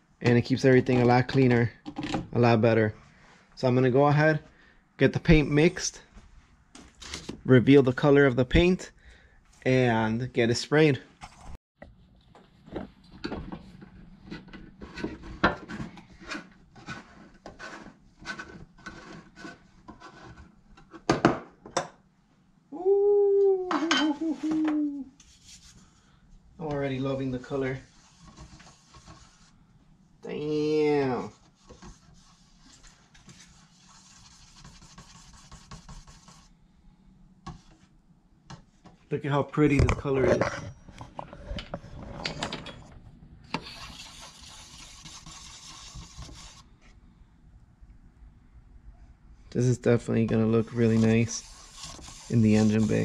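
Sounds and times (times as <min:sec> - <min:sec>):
stick scraping metal can: 0:50.6 - 0:53.0.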